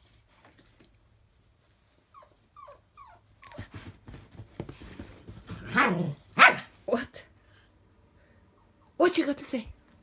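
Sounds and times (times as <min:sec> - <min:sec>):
dog whining: 0:01.7 - 0:03.7
dog scrabbling on bedding: 0:03.5 - 0:06.1.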